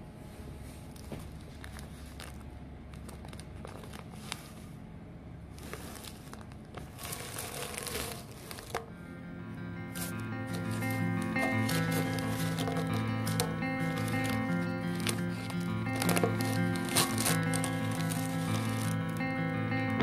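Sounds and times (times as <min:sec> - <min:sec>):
masking tape peeled and crumpled: 0:01.0 - 0:04.8, 0:05.5 - 0:08.9, 0:09.8 - 0:20.0
music: 0:08.8 - 0:20.0.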